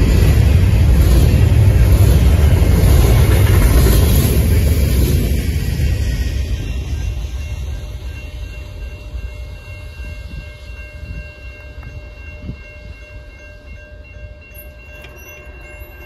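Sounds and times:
freight train rumble: 0.0 - 16.0
level-crossing bell ringing: 6.4 - 16.0.

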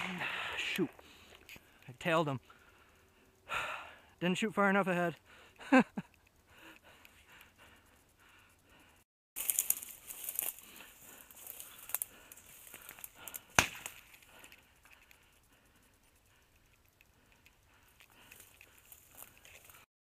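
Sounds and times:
dry brush crackling underfoot: 9.4 - 19.9.

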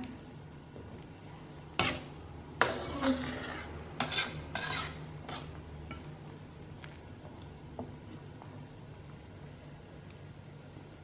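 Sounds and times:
utensil stirring in metal pan: 1.6 - 6.2.

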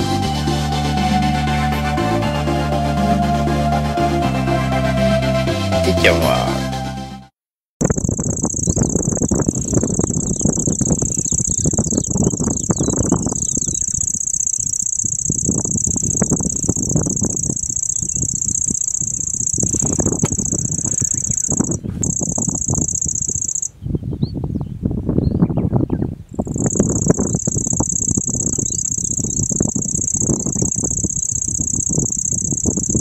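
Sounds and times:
warbler reeling trill: 7.8 - 23.8, 26.4 - 33.0.

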